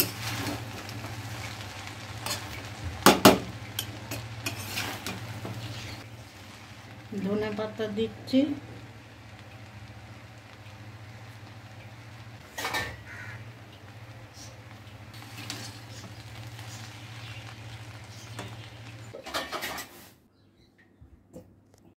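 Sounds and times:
metal spatula scraping pan: 0.0 - 1.6, 3.8 - 6.0.

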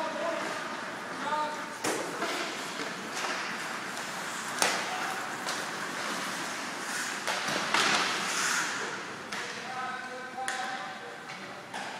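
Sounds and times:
skates scraping across ice: 0.2 - 9.6.

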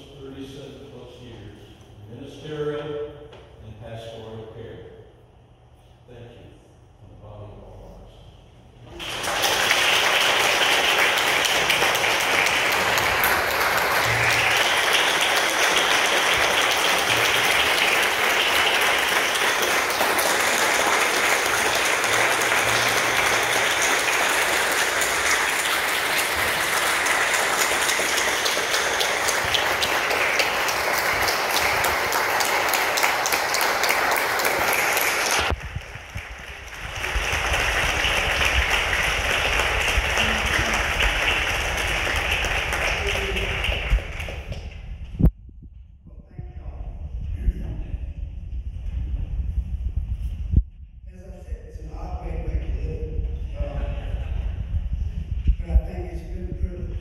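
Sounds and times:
congregation applauding: 8.8 - 44.8.

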